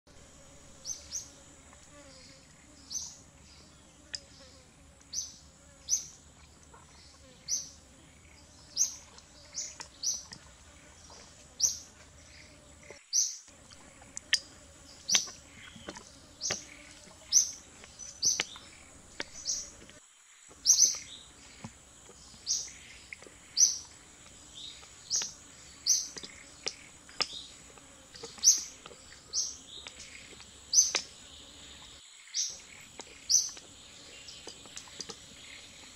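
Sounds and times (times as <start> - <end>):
bird chirping: 20.6 - 21.3, 32.3 - 35.8.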